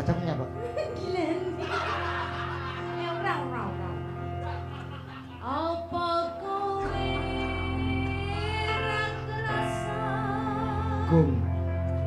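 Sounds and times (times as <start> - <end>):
instrumental backing: 0.0 - 12.0
woman singing into microphone: 5.4 - 11.7.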